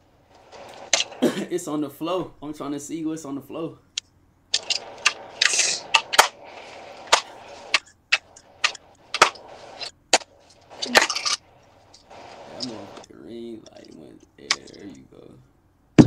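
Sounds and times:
rustling: 0.0 - 1.2, 4.0 - 15.1.

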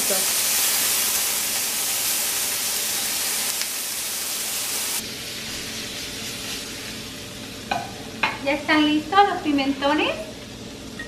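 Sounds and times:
peppers sizzling in a pan: 0.0 - 11.0.

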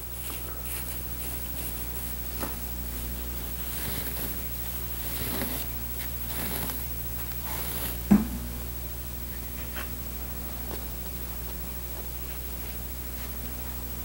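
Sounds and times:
rustling and scratching of padding: 0.0 - 8.5
faint steady hum: 0.0 - 14.0.

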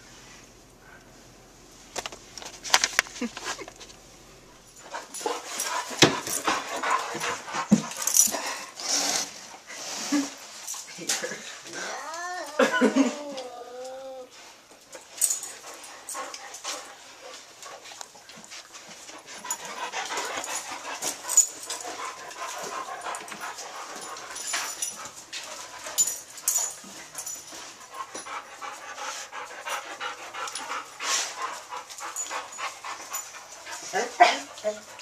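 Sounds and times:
dog panting: 4.7 - 10.4, 14.3 - 35.0.

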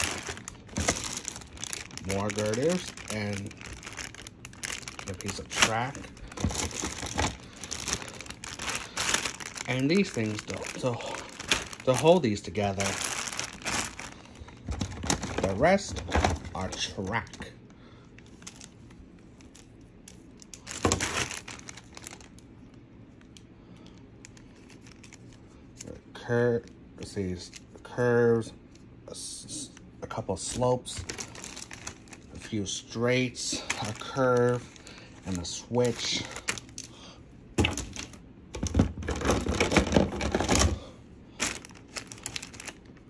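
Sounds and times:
plastic pieces rustling: 0.0 - 16.9, 18.2 - 22.4, 30.5 - 32.6, 33.4 - 37.0, 37.6 - 43.0.

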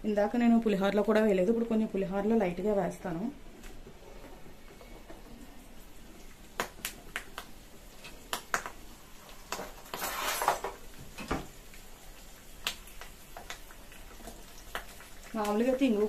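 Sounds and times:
oil sizzle: 0.1 - 16.0
crackles and pops in hot oil: 4.6 - 16.0.

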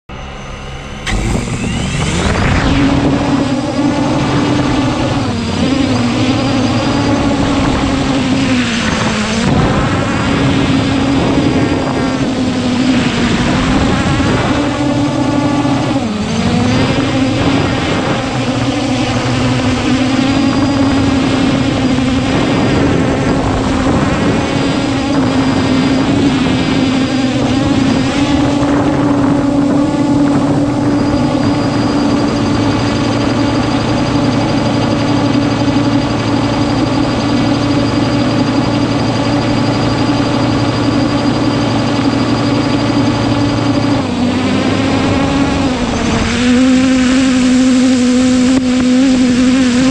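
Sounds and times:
drone propellers whining: 0.1 - 49.9.

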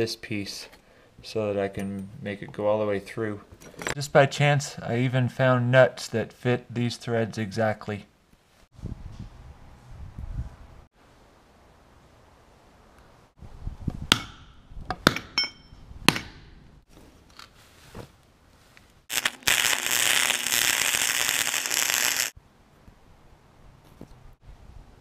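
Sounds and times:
hammer striking steel pipe: 14.1 - 16.5
angle grinder cutting steel: 19.1 - 22.4.

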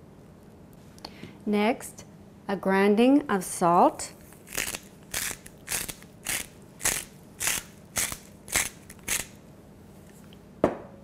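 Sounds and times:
salt mill grinding salt: 4.4 - 9.4.

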